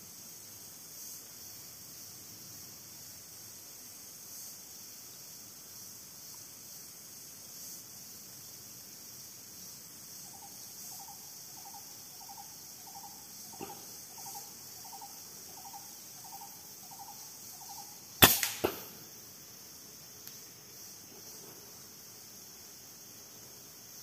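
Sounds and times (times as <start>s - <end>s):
air rifle crack: 18.2s - 19.0s.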